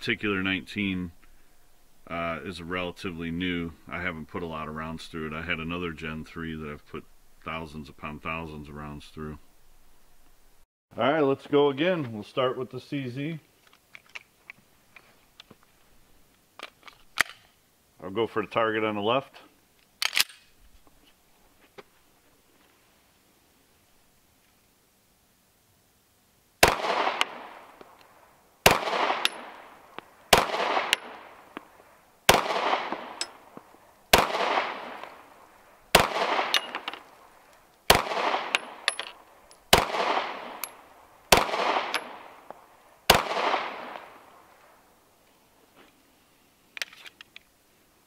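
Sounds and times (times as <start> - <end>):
pistol shots with echo: 26.6 - 27.8, 28.6 - 31.5, 32.3 - 33.5, 34.1 - 35.3, 35.9 - 37.0, 37.9 - 39.0, 39.7 - 42.5, 43.1 - 44.3.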